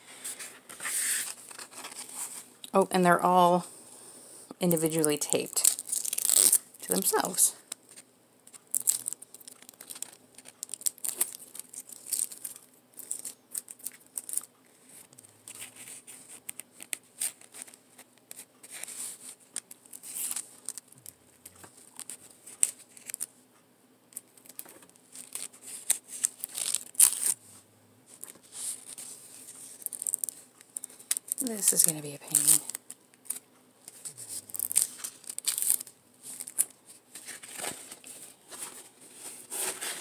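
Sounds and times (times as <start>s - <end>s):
plastic film crinkling: 4.7s - 23.3s, 24.2s - 27.4s, 28.1s - 40.0s
tape ripping off canvas: 5.8s - 6.6s, 34.2s - 36.7s.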